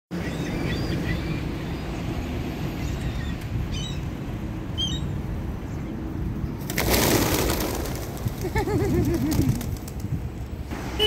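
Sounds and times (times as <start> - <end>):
pigeon wings flapping: 6.6 - 10.2.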